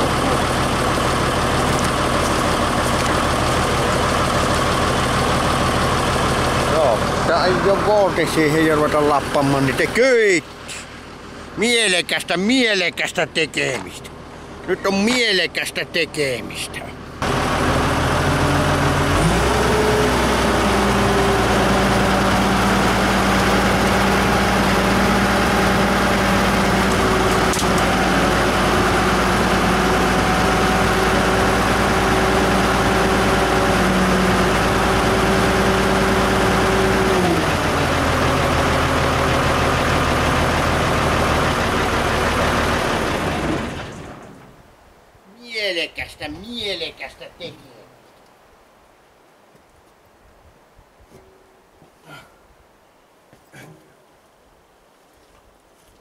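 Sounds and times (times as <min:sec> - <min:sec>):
wheel loader diesel engine: 0:00.0 - 0:44.8.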